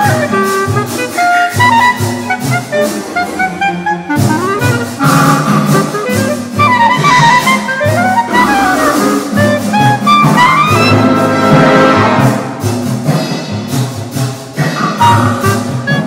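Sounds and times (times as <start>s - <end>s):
brass: 0.0s - 16.0s
orchestra playing fast passage: 0.0s - 16.0s
timpani strikes: 0.0s - 16.0s
marimba: 14.6s - 16.0s.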